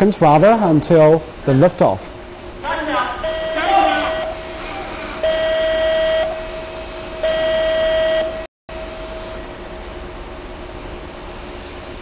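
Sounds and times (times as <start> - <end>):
steady hiss with faint hum: 0.0 - 12.0
electronic beep tone: 3.2 - 4.5.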